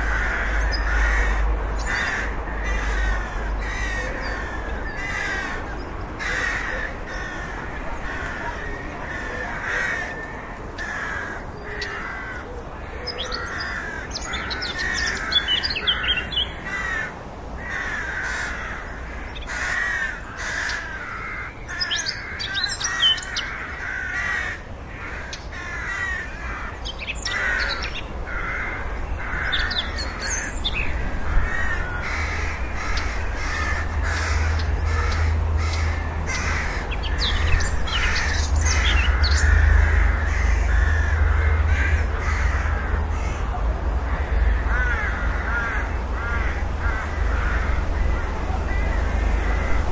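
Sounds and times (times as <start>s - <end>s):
rooks cawing: 0.0s - 49.9s
small birds chirping: 21.6s - 24.1s.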